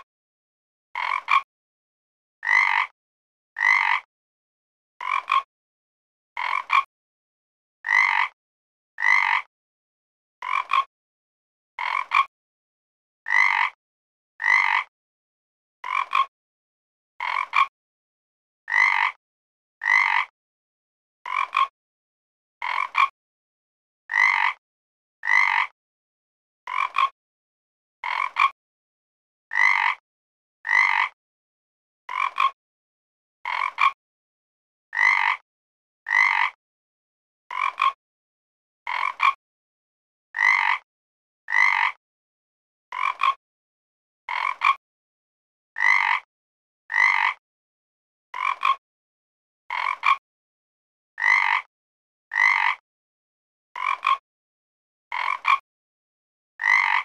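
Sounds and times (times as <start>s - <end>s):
frog croaking: 1.0s - 1.5s, 2.4s - 2.9s, 3.6s - 4.1s, 5.0s - 5.5s, 6.4s - 6.9s, 7.8s - 8.4s, 9.0s - 9.5s, 10.4s - 10.9s, 11.8s - 12.3s, 13.3s - 13.8s, 14.4s - 14.9s, 15.8s - 16.3s, 17.2s - 17.7s, 18.7s - 19.2s, 19.8s - 20.3s, 21.3s - 21.7s, 22.6s - 23.1s, 24.1s - 24.6s, 25.2s - 25.7s, 26.7s - 27.1s, 28.0s - 28.6s, 29.5s - 30.0s, 30.6s - 31.1s, 32.1s - 32.5s, 33.5s - 34.0s, 34.9s - 35.4s, 36.1s - 36.6s, 37.5s - 38.0s, 38.9s - 39.4s, 40.4s - 40.8s, 41.5s - 42.0s, 42.9s - 43.4s, 44.3s - 44.7s, 45.8s - 46.3s, 46.9s - 47.4s, 48.4s - 48.8s, 49.7s - 50.2s, 51.2s - 51.7s, 52.3s - 52.8s, 53.8s - 54.0s, 55.1s - 55.6s, 56.6s - 57.0s.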